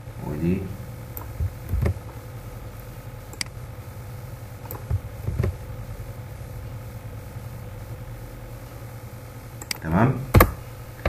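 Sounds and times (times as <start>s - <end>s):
low hum: 0.0s - 11.0s
keyboard and mouse clicks: 1.2s - 2.0s, 4.7s - 5.6s, 9.6s - 9.8s.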